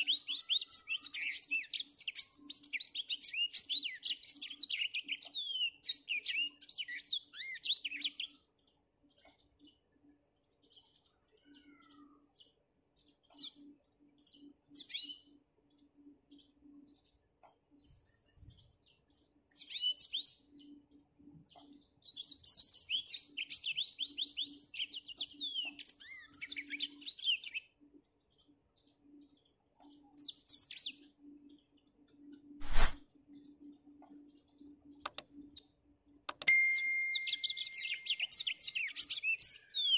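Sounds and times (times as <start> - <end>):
canary singing: 0.0 - 8.5, 11.4 - 12.2, 21.6 - 27.8, 34.3 - 39.9.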